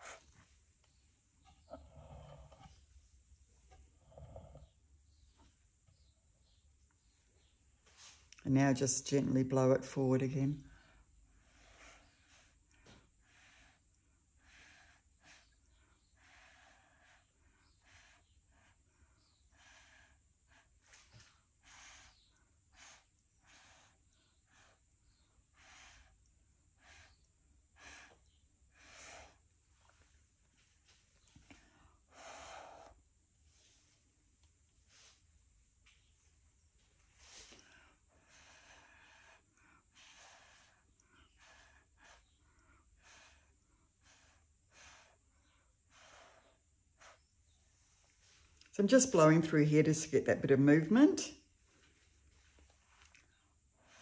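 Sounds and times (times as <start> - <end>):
puffs of breath through straw: 11.4 - 29.5, 37.1 - 48.5.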